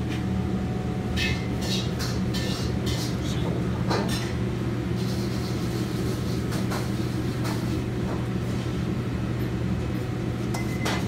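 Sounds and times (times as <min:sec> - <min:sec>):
kitchen machinery humming: 0:00.0 - 0:11.0.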